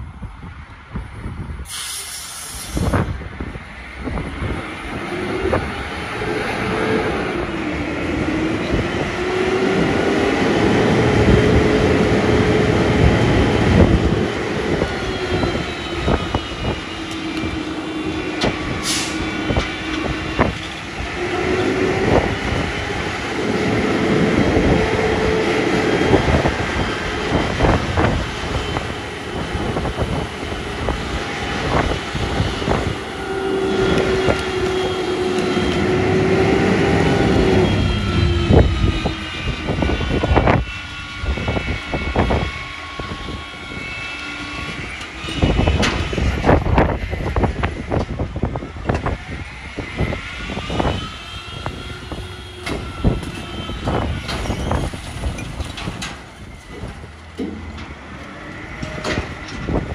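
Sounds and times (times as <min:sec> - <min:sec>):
hydraulic pump whining: 0:04.9 - 0:59.9
clanks and knocks of load: 0:54.2 - 0:58.0.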